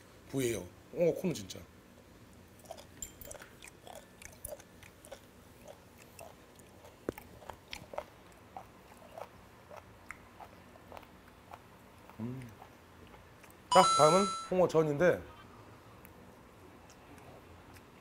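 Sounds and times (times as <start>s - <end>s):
person chewing with crunches: 2.3s - 13.7s, 16.7s - 18.0s.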